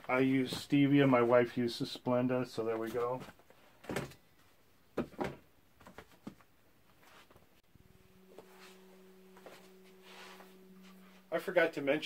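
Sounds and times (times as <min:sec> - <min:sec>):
faint low hum: 0:07.7 - 0:12.0.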